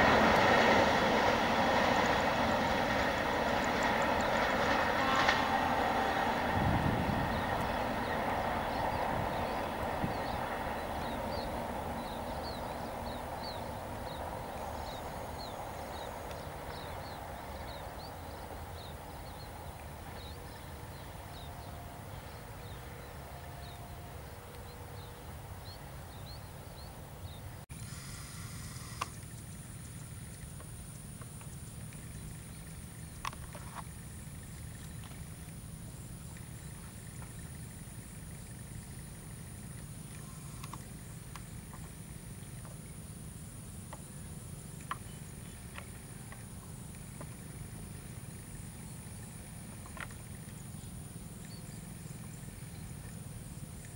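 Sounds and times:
low rumble: 0:00.0 - 0:26.9.

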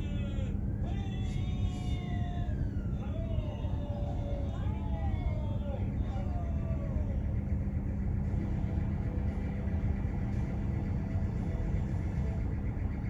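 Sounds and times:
ship engine low rumble: 0:00.0 - 0:13.0.

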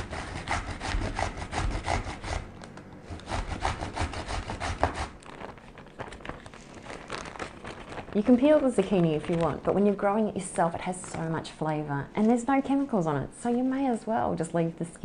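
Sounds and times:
zucchini grated on a grater: 0:00.0 - 0:02.5, 0:03.1 - 0:05.6.

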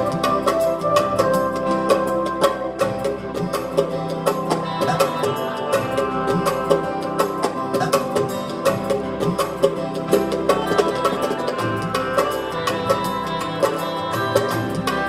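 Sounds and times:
electronic percussion pattern: 0:00.0 - 0:15.0
keyboard melody notes: 0:00.0 - 0:15.0.

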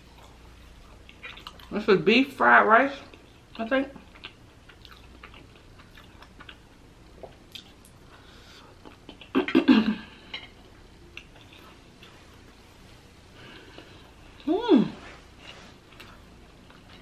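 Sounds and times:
chewing: 0:00.0 - 0:01.8, 0:03.0 - 0:09.4, 0:10.2 - 0:12.6, 0:15.1 - 0:17.0.

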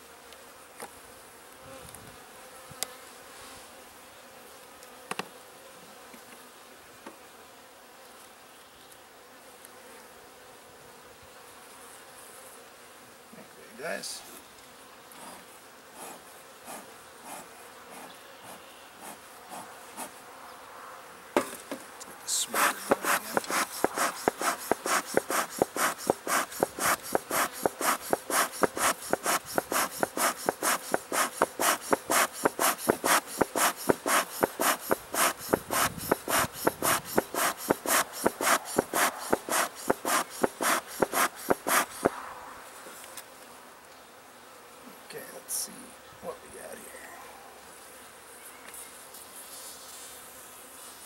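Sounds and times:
bees buzzing: 0:15.0 - 0:43.5
loud rasping strokes: 0:22.3 - 0:42.2.

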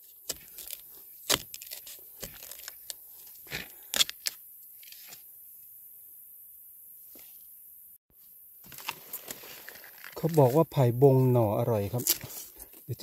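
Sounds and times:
machete cracking bamboo: 0:00.2 - 0:05.2, 0:12.0 - 0:12.6
rustle of husk and dry leaves: 0:08.6 - 0:12.9.

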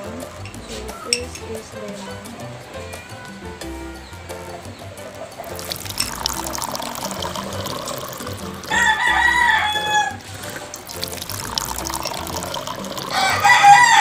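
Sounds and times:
soft background music: 0:00.0 - 0:14.0
rooster crowing: 0:08.6 - 0:10.4, 0:12.7 - 0:14.0.

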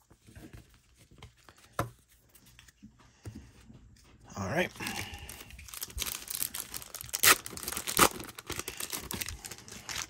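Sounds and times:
wrapper crinkling: 0:04.8 - 0:10.0
wrapper ripping: 0:05.3 - 0:10.0.

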